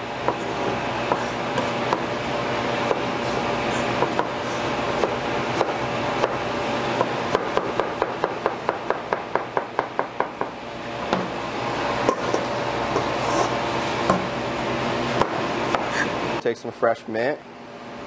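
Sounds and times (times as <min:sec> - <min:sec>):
steady hum: 0:00.0 - 0:18.0
knife chopping on cutting board: 0:04.0 - 0:04.4, 0:05.0 - 0:06.4, 0:07.0 - 0:10.1.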